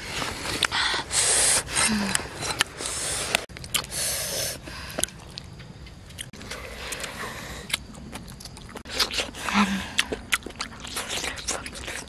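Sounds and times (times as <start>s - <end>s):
roast pork crunching and squishing: 7.7s - 12.0s.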